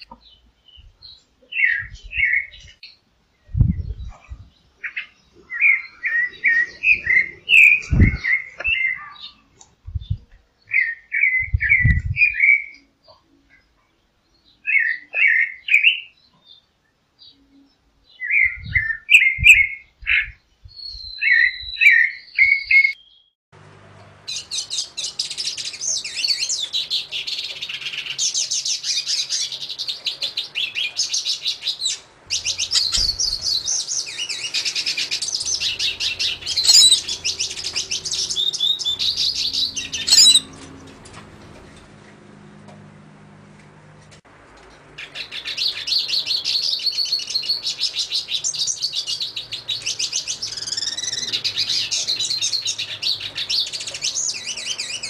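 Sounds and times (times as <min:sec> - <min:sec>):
siskin twittering song: 0:00.0 - 0:23.4, 0:24.2 - 0:40.9, 0:45.0 - 0:55.0
low thumps: 0:32.8 - 0:33.7.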